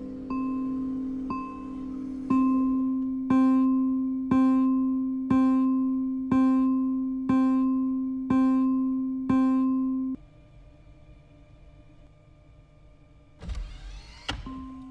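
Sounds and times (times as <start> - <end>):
low electronic warning chime: 0.2 - 10.2.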